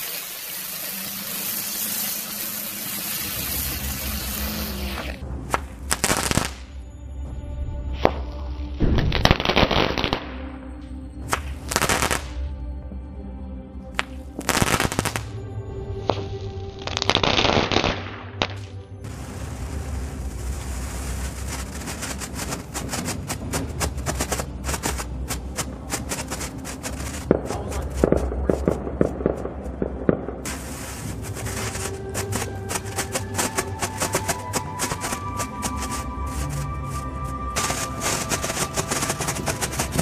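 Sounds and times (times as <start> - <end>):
firework hissing and spraying: 0.0 - 6.7, 14.0 - 15.4, 19.0 - 28.9, 30.4 - 40.0
firework crackling pops and bangs: 0.0 - 6.8, 8.0 - 10.6, 11.2 - 12.4, 14.0 - 15.4, 16.0 - 40.0
background music: 0.1 - 40.0.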